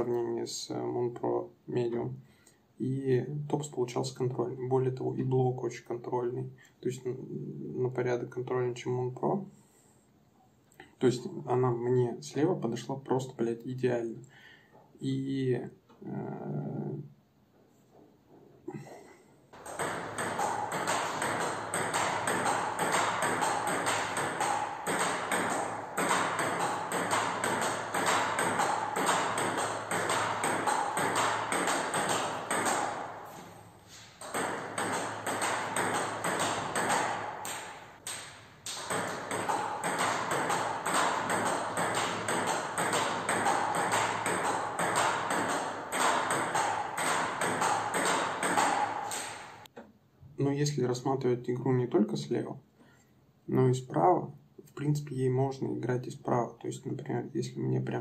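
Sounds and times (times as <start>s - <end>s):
ping pong ball clicking: 19.6s - 33.2s, 34.2s - 49.7s.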